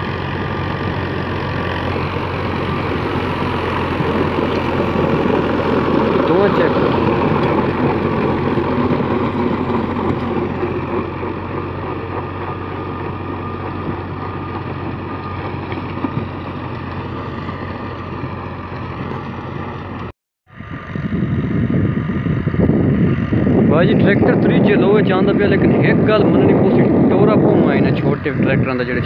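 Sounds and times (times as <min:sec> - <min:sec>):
tractor diesel engine running: 0:00.0 - 0:29.0
rotavator churning soil: 0:00.2 - 0:19.9.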